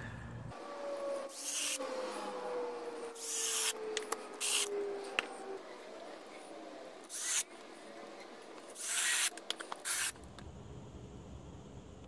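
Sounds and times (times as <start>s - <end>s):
cordless drill driving screws: 3.2s - 3.8s, 4.4s - 5.2s, 7.1s - 7.5s, 8.7s - 10.2s.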